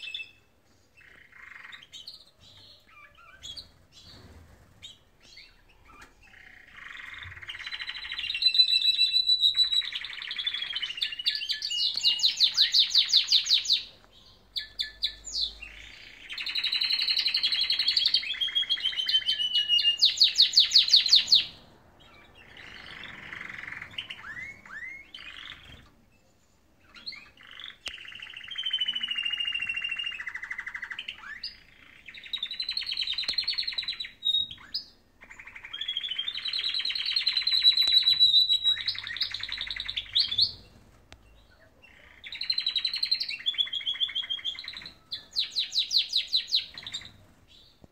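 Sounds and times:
canaries singing trills: 0.0 - 47.9.

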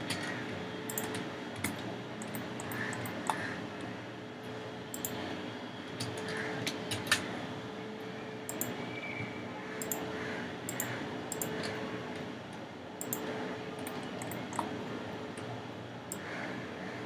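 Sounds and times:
computer mouse clicking: 0.0 - 3.5, 4.9 - 5.2, 6.0 - 7.3, 8.5 - 8.8, 9.8 - 10.1, 10.7 - 11.8, 13.0 - 16.3
faint steady hum: 0.0 - 17.0.

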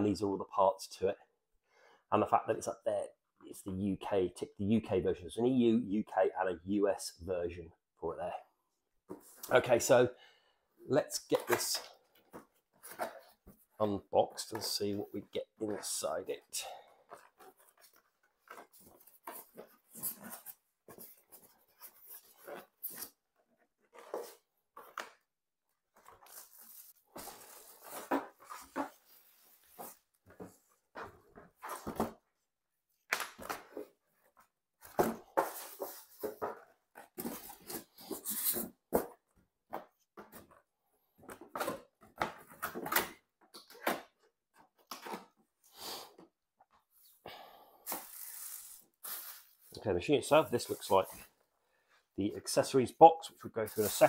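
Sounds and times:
polystyrene and cardboard squeaking: 47.9 - 51.3, 53.6 - 54.0.

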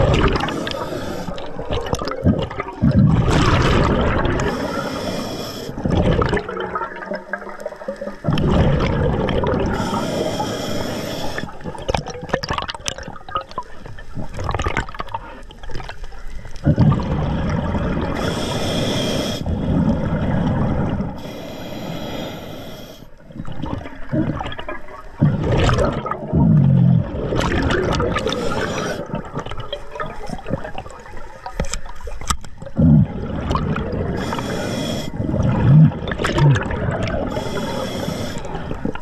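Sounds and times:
bubbling exhalations: 0.0 - 16.0, 16.6 - 22.4, 23.4 - 31.2, 32.6 - 39.0
diver breathing through regulator: 0.3 - 1.6, 4.4 - 6.0, 9.6 - 11.6, 18.1 - 19.7, 21.2 - 23.2, 28.2 - 29.2, 34.1 - 35.7, 37.2 - 38.8.

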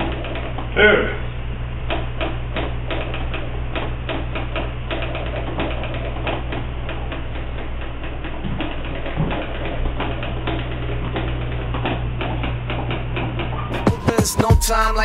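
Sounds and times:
electrical hum: 0.0 - 15.0
record scratching: 13.8 - 15.0.

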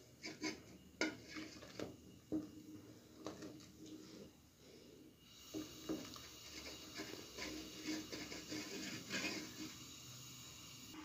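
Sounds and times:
spoon scraping a steel pot: 0.2 - 1.7, 6.4 - 9.9.

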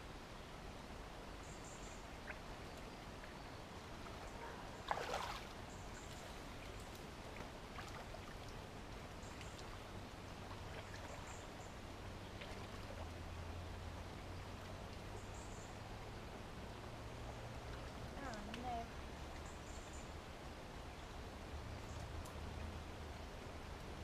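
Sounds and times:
splashing and knocking of branches: 4.8 - 5.5
water splash: 4.8 - 6.1.

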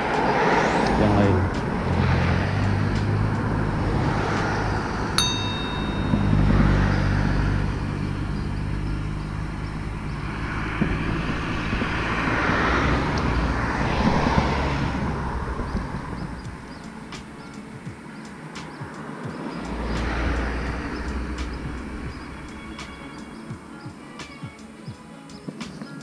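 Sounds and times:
cars passing: 0.0 - 26.0
short ringing click: 5.2 - 6.5.

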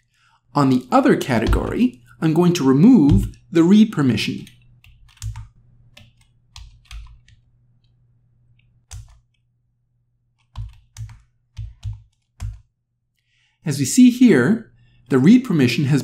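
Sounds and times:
computer keyboard typing: 0.7 - 8.0, 8.8 - 9.4, 10.4 - 12.7.

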